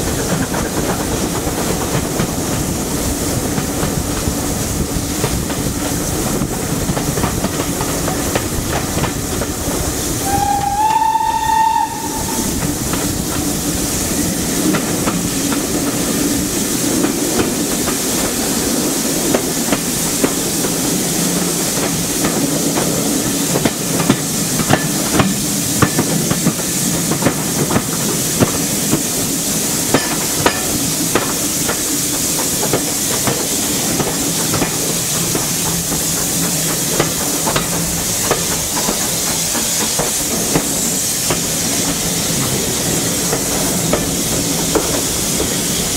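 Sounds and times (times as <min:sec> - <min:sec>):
train running noise: 0:00.0 - 0:45.9
wheels clicking over rail joints: 0:03.4 - 0:10.0, 0:14.6 - 0:45.9
steam locomotive whistle: 0:10.2 - 0:12.8.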